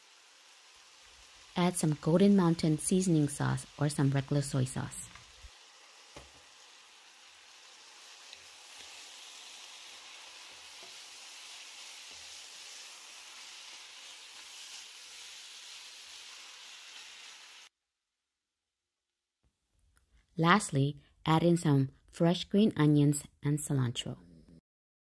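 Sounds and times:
food sizzling in frying pan: 0.0s - 17.7s.

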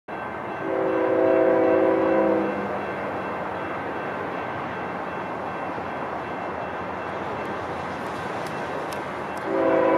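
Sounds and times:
locomotive air horn chord: 0.6s - 2.7s, 9.4s - 9.9s.

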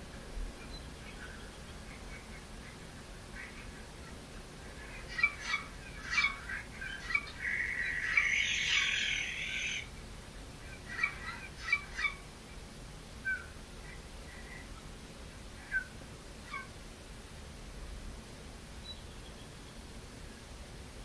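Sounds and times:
bird chirping: 0.6s - 9.9s, 10.7s - 12.2s, 18.8s - 19.9s
harsh raspy bird call: 1.1s - 9.9s, 10.6s - 12.2s, 15.6s - 16.7s.

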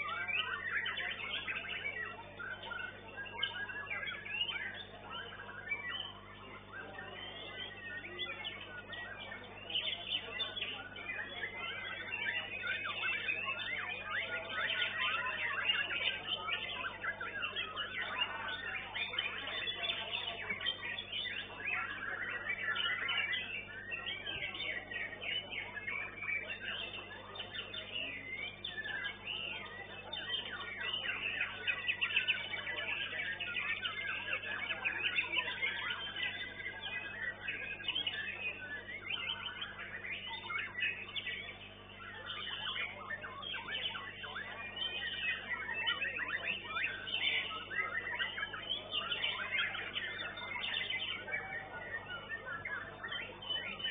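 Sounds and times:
songbird singing rapid phrases: 0.0s - 53.9s.

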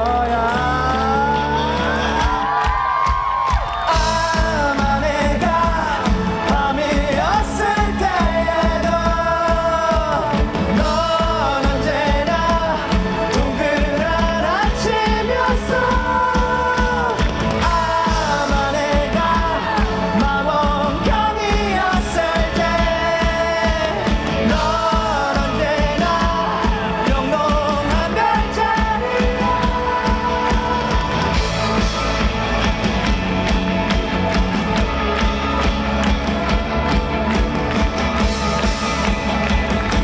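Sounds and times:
man singing: 0.0s - 2.6s, 3.8s - 32.7s
drums: 0.0s - 40.0s
electric guitar: 0.0s - 40.0s.

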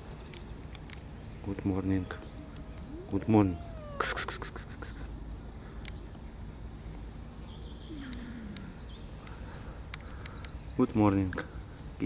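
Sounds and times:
low background rumble: 0.4s - 10.7s
faint clicks: 8.0s - 10.6s.

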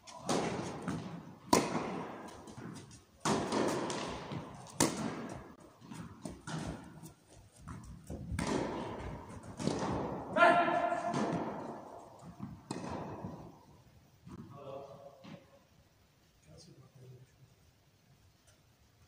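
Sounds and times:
footsteps on court: 0.0s - 13.6s
tennis ball struck by rackets: 0.0s - 13.6s
ball bounces: 0.1s - 13.6s.

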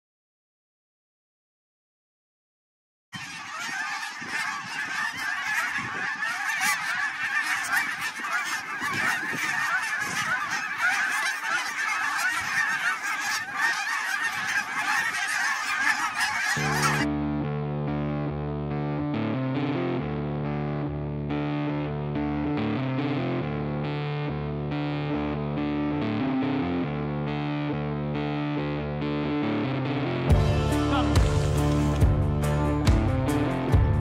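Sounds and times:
geese honking: 3.2s - 17.1s
electric guitar music: 17.0s - 34.0s.

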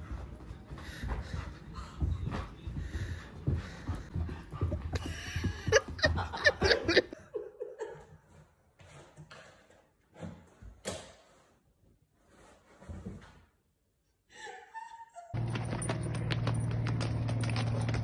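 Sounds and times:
people laughing: 4.4s - 8.2s.

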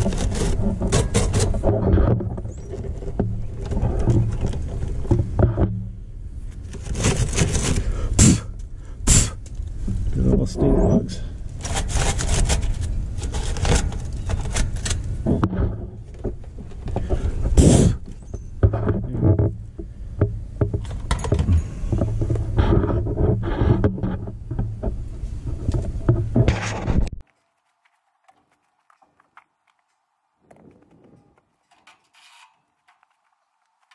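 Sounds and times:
brush scraping metal panel: 0.0s - 5.6s, 6.6s - 8.5s, 10.2s - 19.6s.

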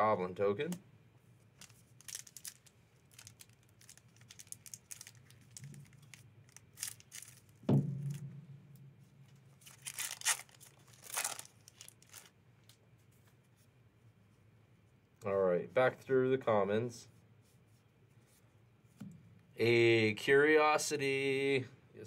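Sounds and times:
foil wrapper crinkling and tearing: 1.6s - 7.6s, 9.6s - 12.4s
knock: 7.7s - 8.4s.

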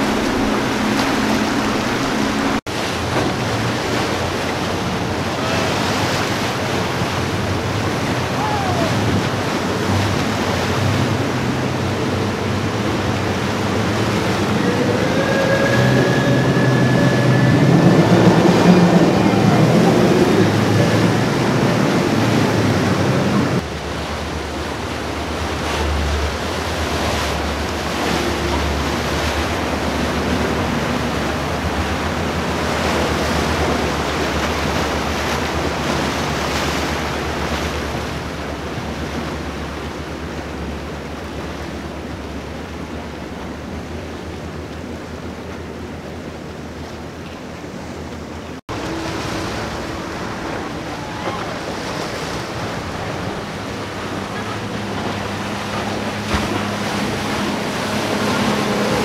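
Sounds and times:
wind buffeting microphone: 0.0s - 46.2s
powerboat engines rumbling: 0.0s - 59.0s
rushing wake water: 0.0s - 59.0s.

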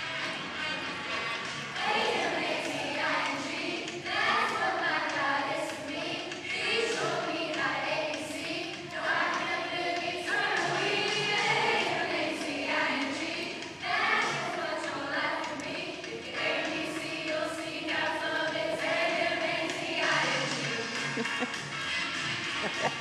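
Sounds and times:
children's choir singing: 0.0s - 21.5s.

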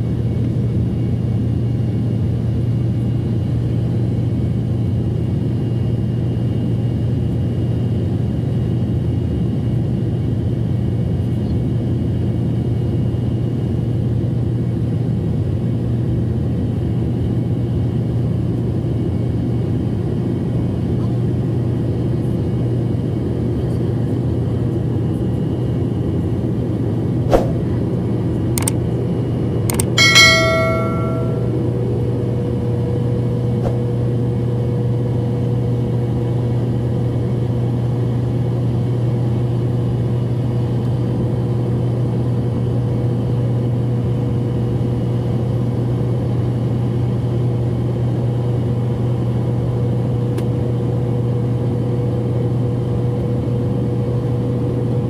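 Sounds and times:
jet cabin engine hum: 0.0s - 55.0s
sharp clicks: 29.7s - 30.0s
cabin chime: 30.0s - 31.6s
faint steady tone: 30.0s - 31.6s.

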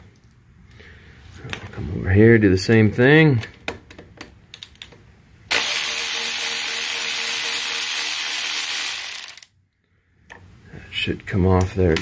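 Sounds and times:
electric ratchet whirring: 5.5s - 9.5s.

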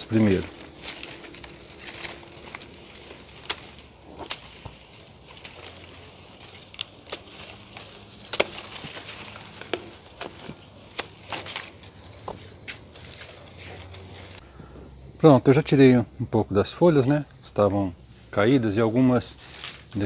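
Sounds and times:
pruning shears snipping stems: 0.0s - 14.4s.

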